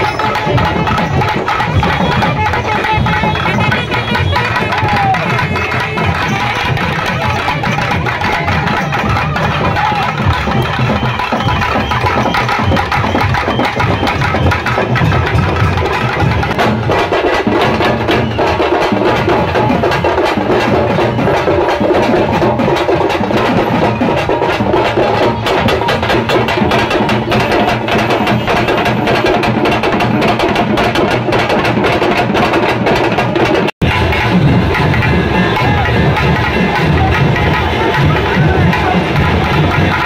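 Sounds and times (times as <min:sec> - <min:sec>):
wind instrument melody: 0:00.0 - 0:16.0
drum band beating fast rhythm: 0:00.0 - 0:40.0.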